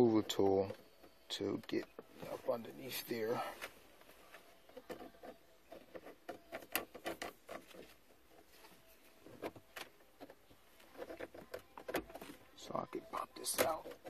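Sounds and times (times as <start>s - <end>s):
plastic clicks taps and scrapes: 3.6s - 8.6s.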